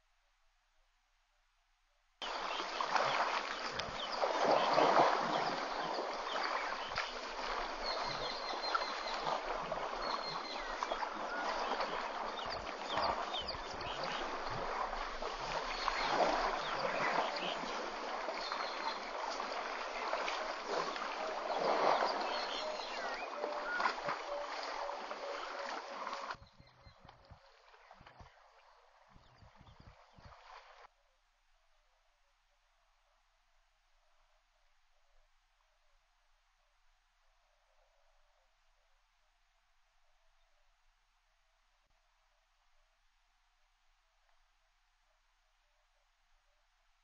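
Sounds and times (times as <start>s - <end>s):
water splashing and sloshing: 2.2s - 30.9s.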